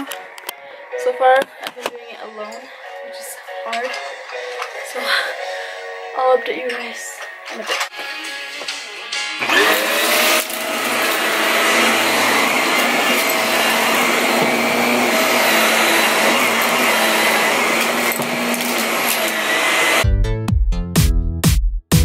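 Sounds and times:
vacuum cleaner motor running: 9.4s - 20.0s.

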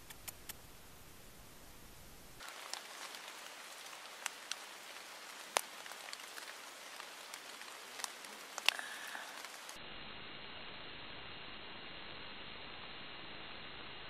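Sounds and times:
steady rain hiss: 0.0s - 14.0s
raindrops ticking: 2.4s - 9.8s.

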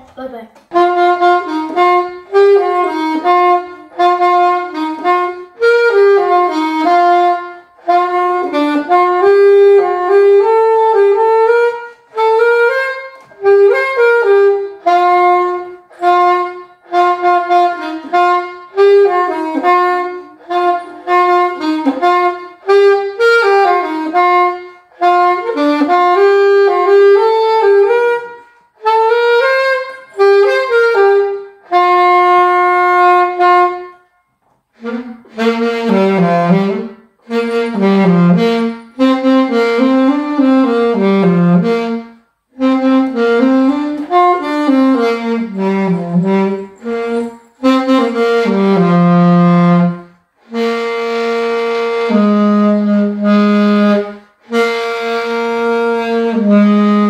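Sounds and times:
alto saxophone slow melody: 0.2s - 57.0s.

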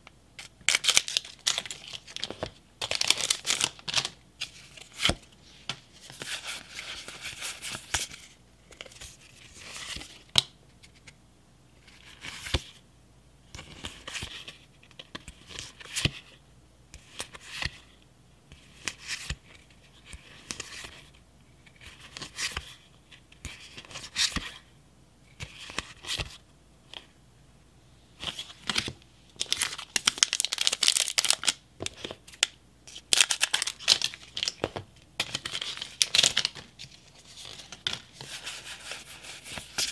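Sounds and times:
foil crinkling: 0.7s - 4.1s, 29.4s - 31.6s
trading cards rustling: 28.2s - 39.9s.

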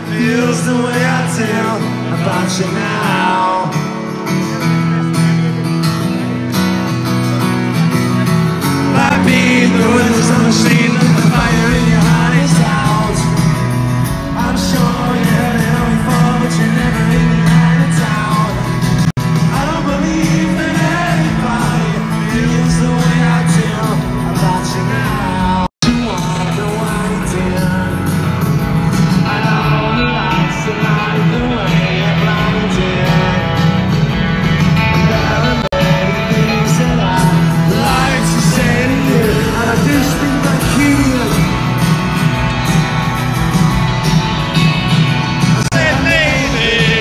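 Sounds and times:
live rock band with singing: 0.0s - 47.0s.

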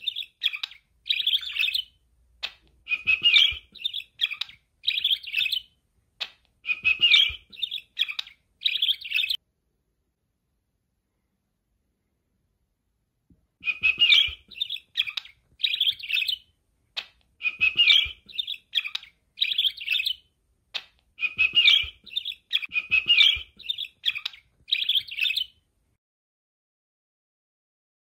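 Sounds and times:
budgerigar chirping: 0.0s - 9.4s, 13.6s - 25.6s.

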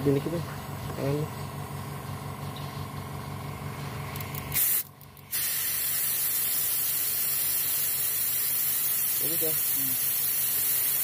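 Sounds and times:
low steady hum: 0.0s - 7.6s
fuel injector spraying hiss: 4.2s - 11.0s.

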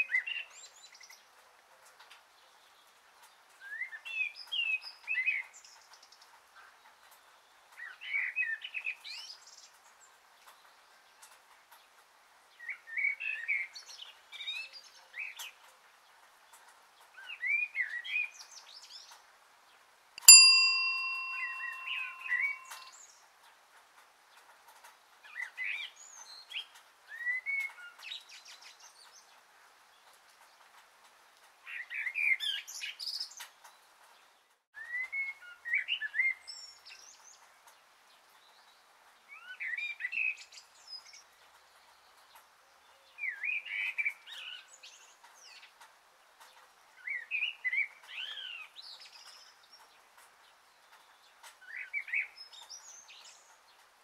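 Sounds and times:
songbirds chirping: 0.0s - 54.0s
bell-like chime ringing: 20.2s - 22.9s.

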